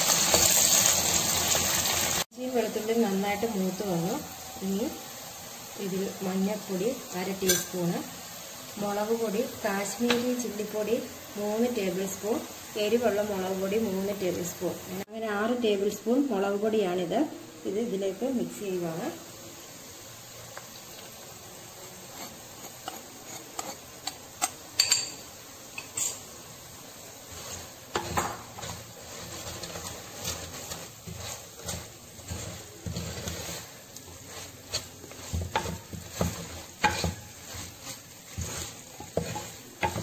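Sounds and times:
spice sizzling in hot oil: 0.0s - 40.0s
spoon scraping clay pot: 22.0s - 25.2s, 27.3s - 40.0s.

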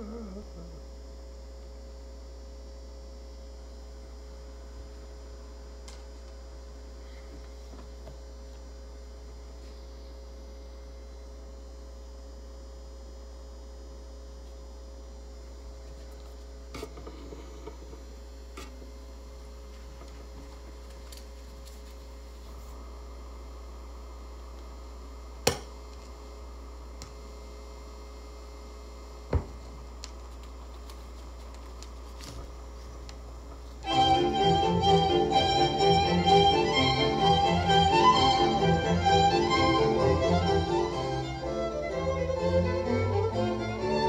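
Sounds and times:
electrical mains hum: 0.0s - 44.0s
faint clicks and rustles: 30.0s - 33.8s.

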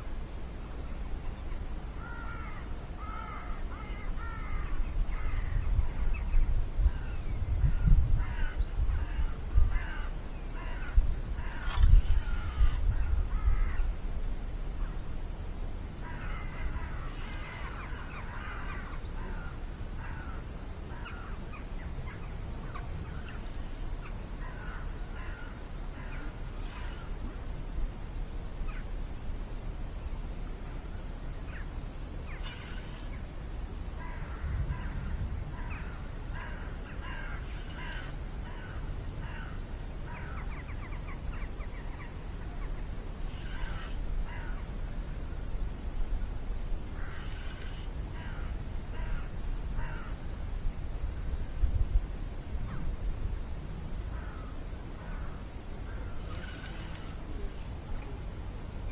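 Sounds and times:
small birds calling: 0.0s - 58.9s
wind buffeting microphone: 0.0s - 58.9s
crows cawing: 2.0s - 6.2s, 6.9s - 14.0s, 16.0s - 23.4s, 24.4s - 27.3s, 34.0s - 42.1s, 43.3s - 44.7s, 47.0s - 50.2s, 54.1s - 55.5s.

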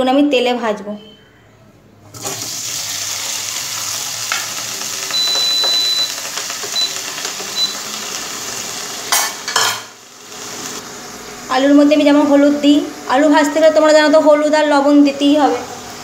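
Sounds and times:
potatoes sizzling in hot oil: 2.3s - 11.5s.

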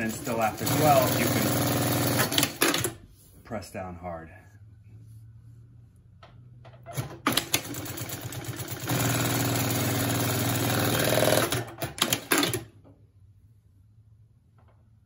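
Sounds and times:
sewing machine running: 0.0s - 3.0s, 7.0s - 12.7s
sewing machine sharp clacks: 0.0s - 3.0s, 7.0s - 12.7s.

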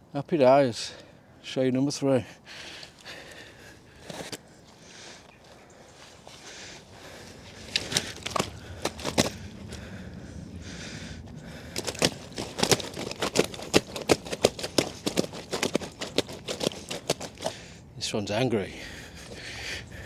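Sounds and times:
fish thrashing on a mat: 7.6s - 9.5s, 11.6s - 17.6s.

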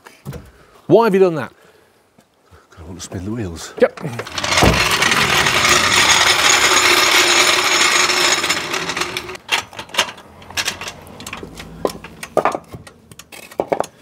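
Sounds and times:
castors grinding on concrete: 4.0s - 9.5s
knocks and clicks: 4.2s - 13.8s.

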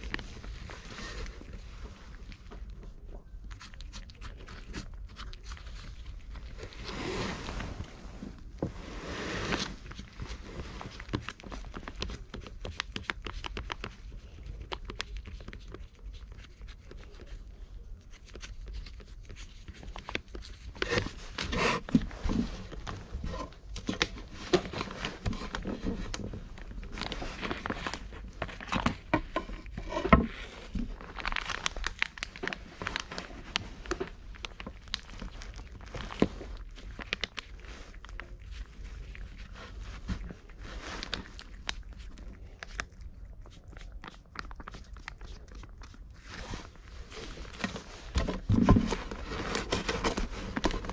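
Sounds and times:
cat licking and eating: 0.0s - 50.9s
plastic pouch crinkling: 30.4s - 50.9s.

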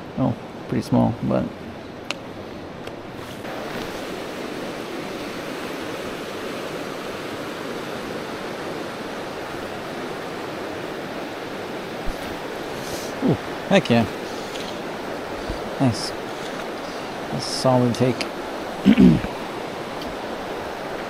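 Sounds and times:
water rushing over rocks: 0.4s - 21.0s.

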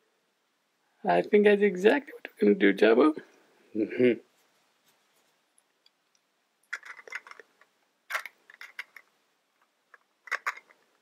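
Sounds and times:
plastic blocks clicking together: 6.6s - 11.0s.

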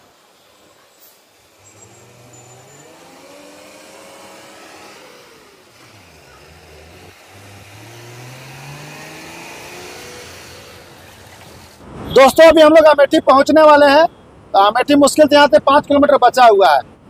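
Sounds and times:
truck diesel engine accelerating: 0.0s - 11.8s.

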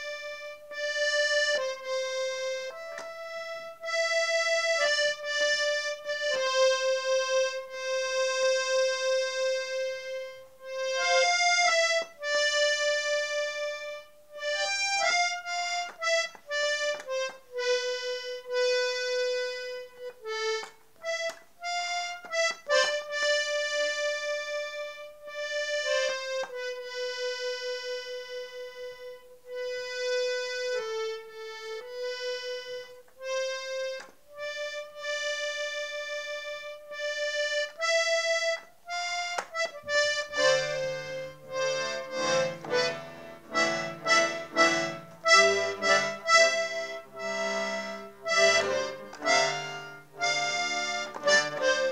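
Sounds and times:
accordion playing a slow melody: 0.0s - 51.9s.

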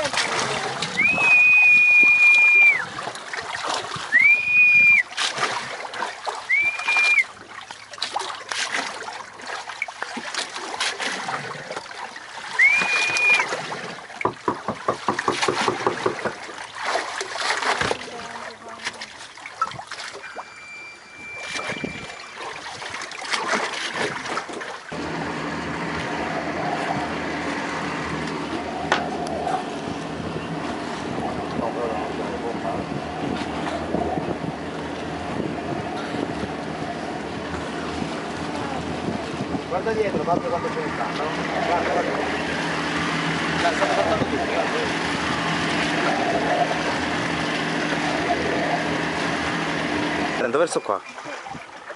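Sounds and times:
boat engine idling: 0.0s - 5.1s, 11.3s - 23.0s, 24.9s - 51.9s
water splashing around boat: 0.0s - 51.9s
short high whistles: 6.5s - 7.3s, 12.6s - 13.5s.

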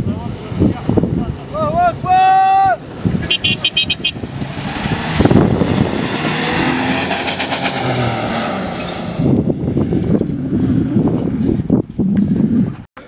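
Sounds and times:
loud rushing noise: 2.7s - 11.2s
pickup truck engine revving: 2.8s - 11.6s.

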